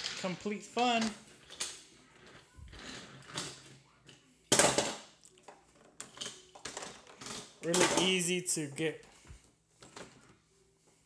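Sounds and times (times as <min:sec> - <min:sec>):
toy trains clattering on plastic track: 0:00.0 - 0:08.4.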